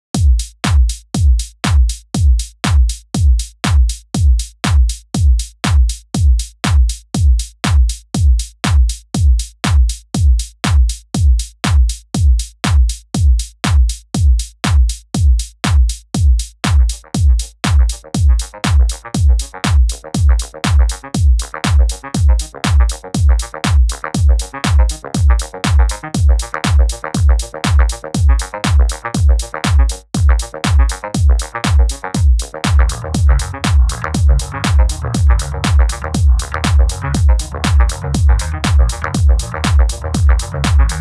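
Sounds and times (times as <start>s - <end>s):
electronic dance music: 16.7s - 41.0s
busy synth part: 30.8s - 41.0s.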